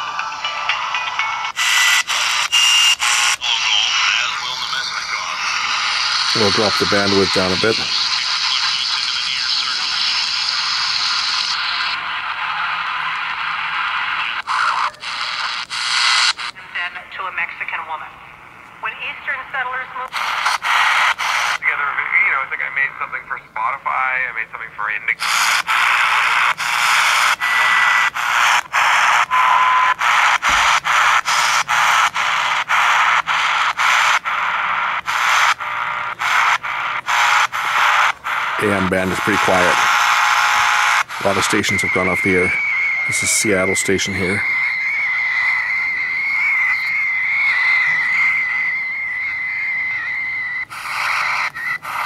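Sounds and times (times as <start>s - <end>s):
radio static hiss: 0.0s - 52.0s
radio whistle: 1.5s - 16.5s, 20.1s - 21.6s, 25.2s - 52.0s.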